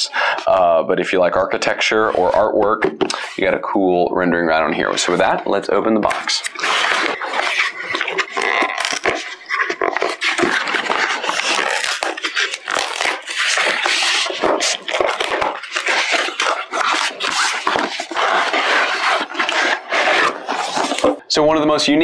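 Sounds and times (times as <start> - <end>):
cardboard rustling and scraping: 6.0 - 21.2.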